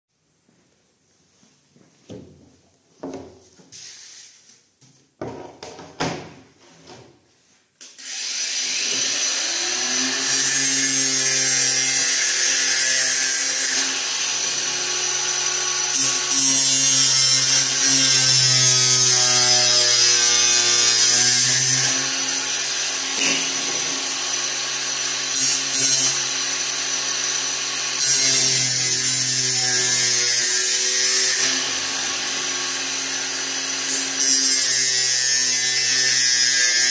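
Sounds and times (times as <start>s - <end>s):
power tool cutting panel: 8.0s - 36.9s.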